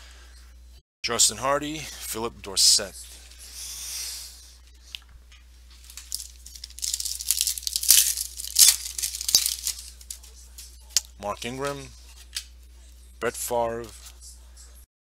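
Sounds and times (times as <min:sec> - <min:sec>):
plastic wrapper tearing and crinkling: 0:05.8 - 0:10.3.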